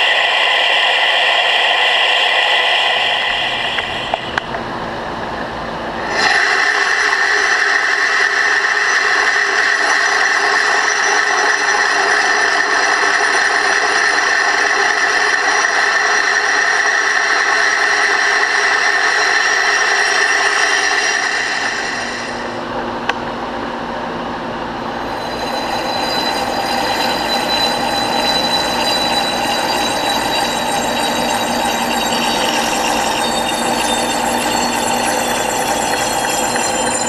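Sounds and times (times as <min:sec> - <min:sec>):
metal lathe cutting with high tone: 0:06.0 - 0:22.5, 0:25.0 - 0:37.0.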